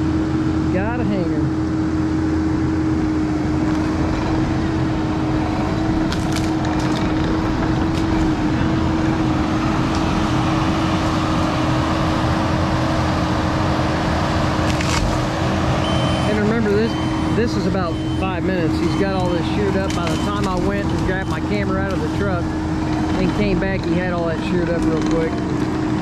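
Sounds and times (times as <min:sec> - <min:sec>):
diesel engine whining under load: 0:00.0 - 0:26.0
sharp cracks: 0:06.1 - 0:08.3.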